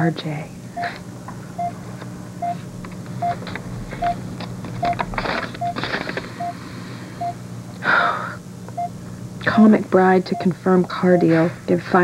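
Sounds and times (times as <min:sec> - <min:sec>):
low hum: 0:00.4 - 0:11.8
patient monitor beeping: 0:00.7 - 0:01.0, 0:01.6 - 0:01.8, 0:02.4 - 0:02.6, 0:03.2 - 0:07.4, 0:08.7 - 0:09.0, 0:10.0 - 0:11.5
paper rustling: 0:05.0 - 0:06.4.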